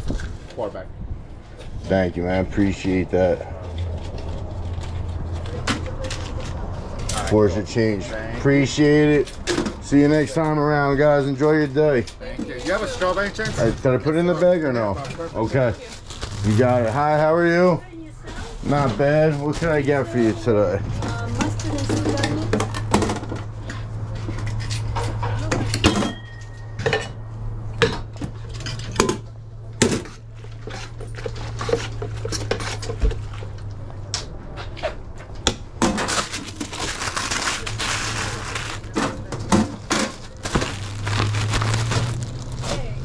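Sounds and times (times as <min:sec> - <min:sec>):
rustling: 0:14.9 - 0:22.9, 0:35.9 - 0:43.0.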